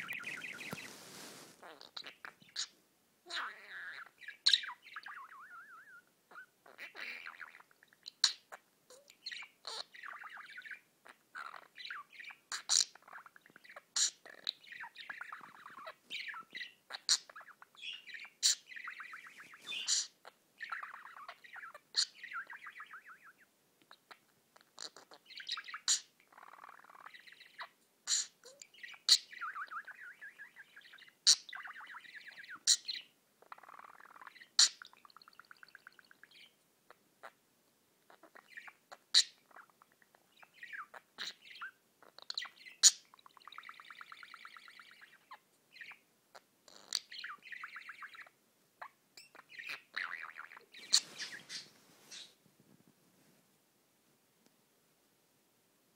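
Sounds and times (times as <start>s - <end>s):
budgerigar warbling: 14.0s - 22.9s, 49.3s - 52.3s.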